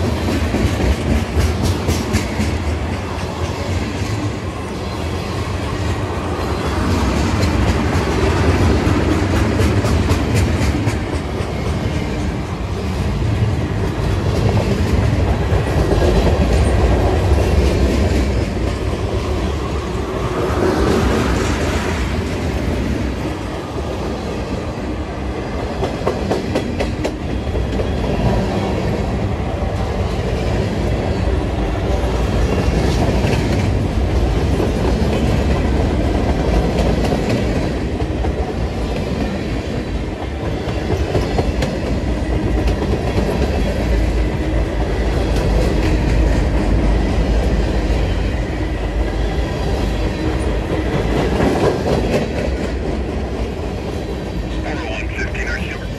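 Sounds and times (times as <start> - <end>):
freight train rumbling past: 0.0 - 55.9.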